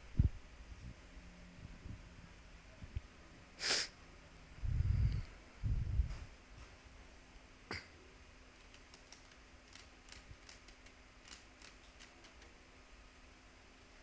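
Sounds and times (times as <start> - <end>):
computer keyboard clicks: 8.7 - 12.5.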